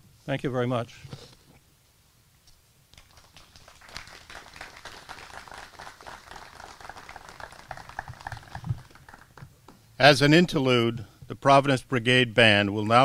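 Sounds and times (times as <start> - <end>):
small audience applauding: 2.9 - 9.6.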